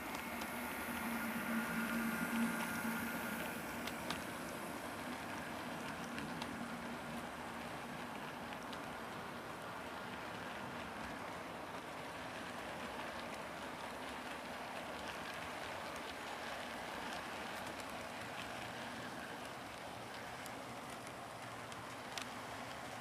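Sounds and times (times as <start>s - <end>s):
track clicks: 0.0s - 8.9s
model train wheels on rail: 0.0s - 23.0s.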